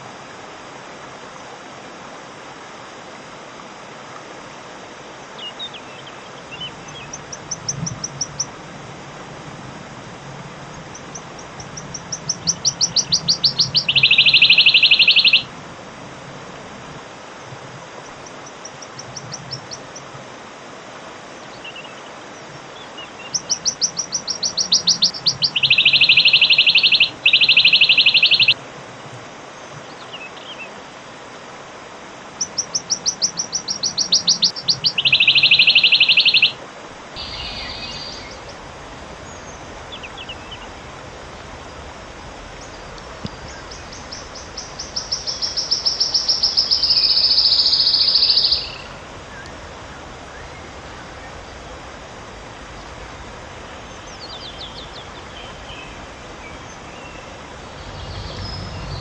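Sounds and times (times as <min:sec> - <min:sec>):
steady background hiss: 0:00.0 - 0:59.0
bird trilling song: 0:05.4 - 0:08.5, 0:11.0 - 0:15.5, 0:22.8 - 0:28.6, 0:32.4 - 0:36.6, 0:37.2 - 0:38.6, 0:39.2 - 0:40.8, 0:42.6 - 0:49.5, 0:53.8 - 0:59.0.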